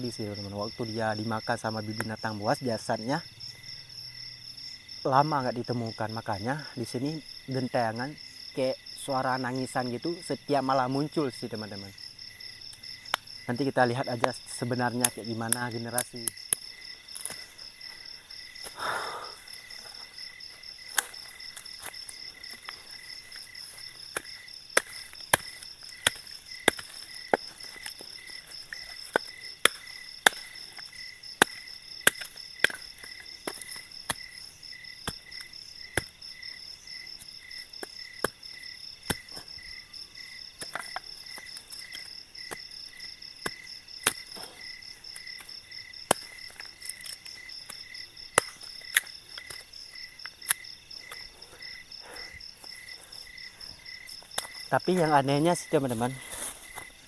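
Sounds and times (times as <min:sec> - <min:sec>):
crickets chirping: 0:00.0 - 0:57.0
wood being chopped: 0:15.0 - 0:17.5, 0:20.9 - 0:36.2, 0:37.2 - 0:39.8, 0:40.5 - 0:51.3, 0:54.1 - 0:55.1.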